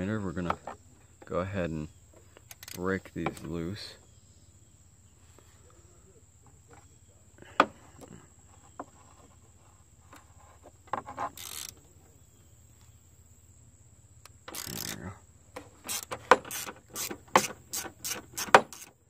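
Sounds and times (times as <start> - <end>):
ratchet clicks and knocks: 2.4 - 3.4, 11.0 - 11.8, 14.2 - 19.0
ratcheting rasp: 2.5 - 2.8, 11.0 - 11.8, 14.4 - 19.0.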